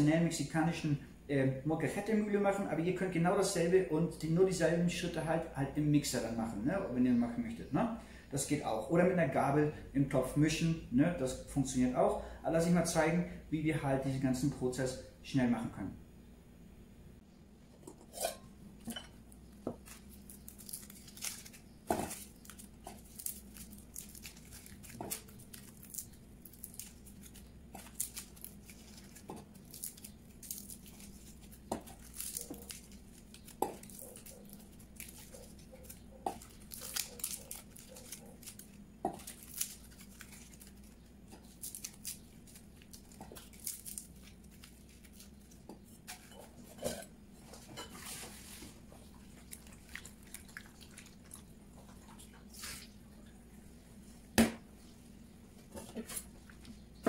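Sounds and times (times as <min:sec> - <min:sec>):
husks tearing and rustling: 0:19.8 - 0:46.4.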